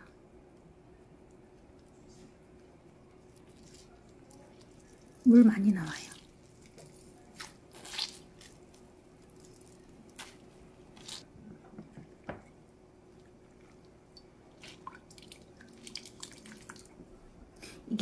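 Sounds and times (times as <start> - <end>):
wet squishes of wringing cucumber: 3.2 - 11.3, 13.1 - 17.0
water dripping into a cup: 13.2 - 17.0.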